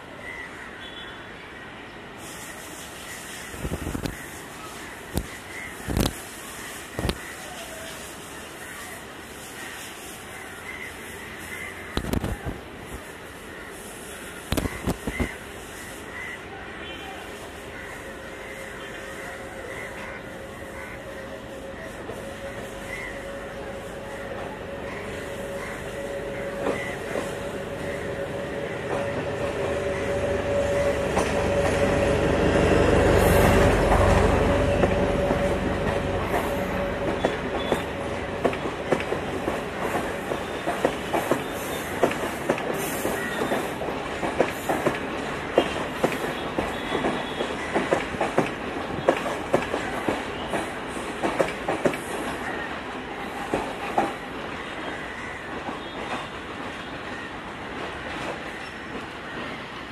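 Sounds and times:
diesel train engine rumble and whine: 6.5 - 45.6
train wheels clacking over rail joints: 33.8 - 52.6, 53.4 - 56.9.

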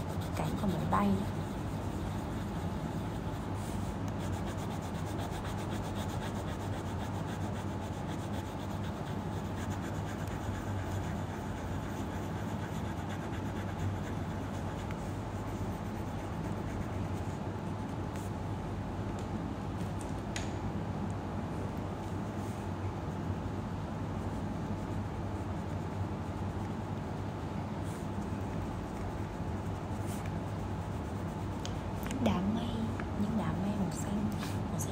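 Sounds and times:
pencil scratching on paper: 0.0 - 17.4
low background hum: 0.0 - 34.9.

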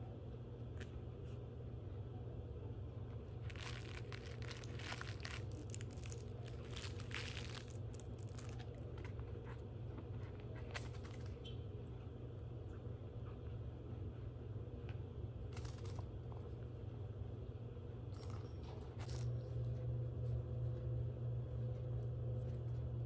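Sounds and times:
steady low hum: 0.0 - 23.0
foil bow crinkling: 3.3 - 9.2.

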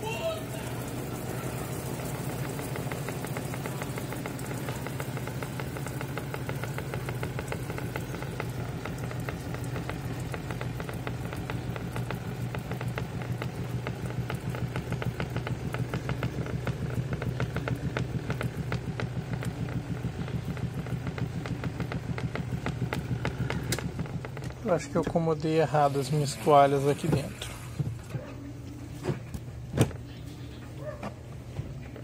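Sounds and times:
spin dryer motor hum: 0.0 - 32.0
rapid rhythmic knocking: 0.6 - 25.2.

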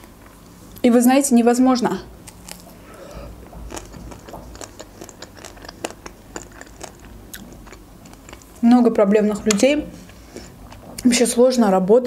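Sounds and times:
biting and chewing ice cream bar: 2.2 - 8.6
chocolate glaze cracking: 2.2 - 8.7.

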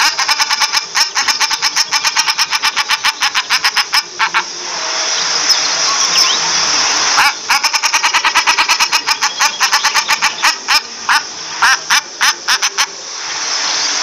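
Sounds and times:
duck cackling calls: 0.0 - 4.5, 7.2 - 13.0
steady hiss: 0.0 - 14.0.

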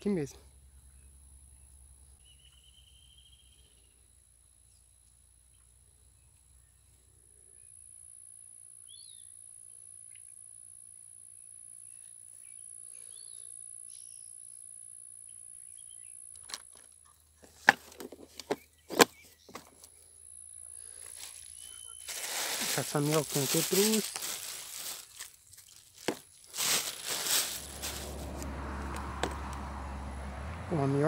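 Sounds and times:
bird chirps: 0.7 - 4.0, 8.8 - 9.4, 11.8 - 14.6, 15.2 - 16.3, 20.7 - 23.2
bird trill: 2.2 - 4.0, 20.8 - 22.4
high-pitched insect drone: 7.5 - 16.4.

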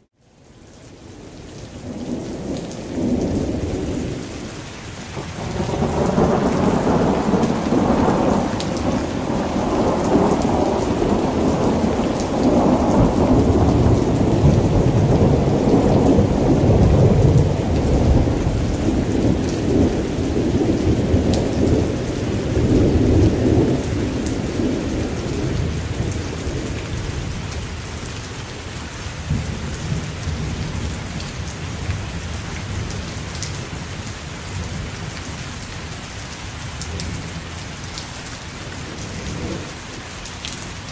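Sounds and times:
steady rain: 0.0 - 40.9
rolling thunder: 5.2 - 27.6.

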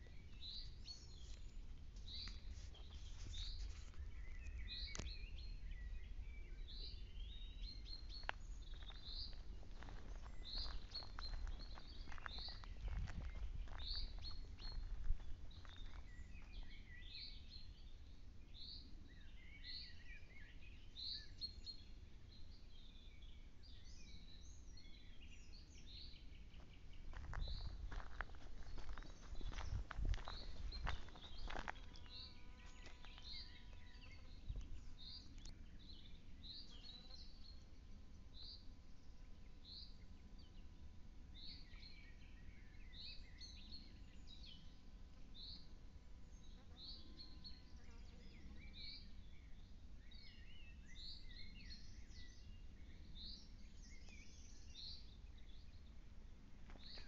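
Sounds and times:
soft bird twittering: 0.0 - 18.0, 23.0 - 37.8.

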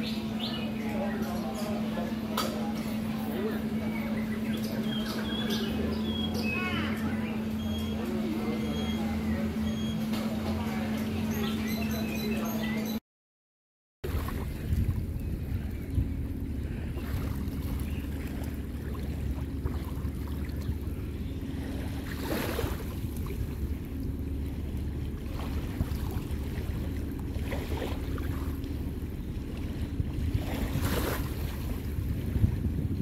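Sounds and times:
washes of water noise: 14.0 - 33.0
wind buffeting microphone: 14.0 - 33.0
faint low hum: 14.1 - 33.0.

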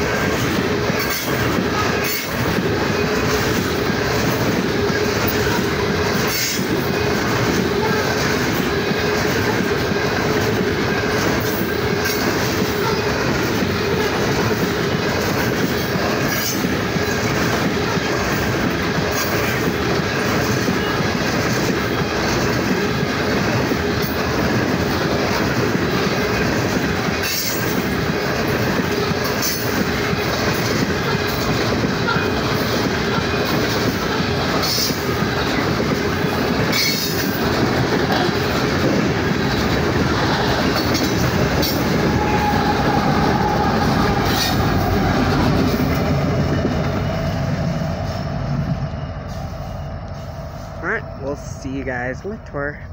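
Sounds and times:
wheels clacking: 0.0 - 47.3
freight train wheels rumbling: 0.0 - 52.9.

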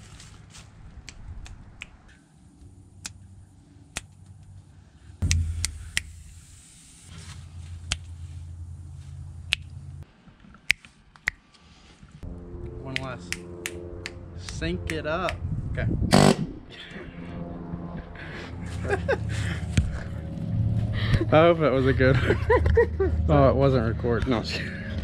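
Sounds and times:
finger snaps: 1.0 - 2.0, 10.7 - 11.4.

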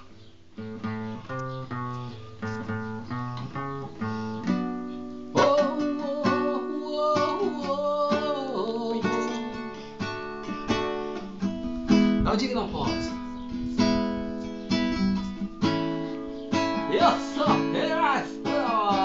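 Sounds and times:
acoustic guitar strumming: 0.0 - 19.0
man singing: 5.3 - 9.8, 16.8 - 19.0.

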